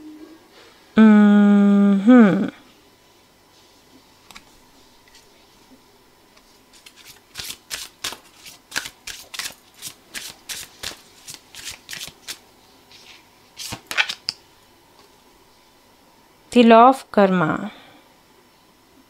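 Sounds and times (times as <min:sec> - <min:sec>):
cards shuffled by hand: 0:06.7 - 0:14.4.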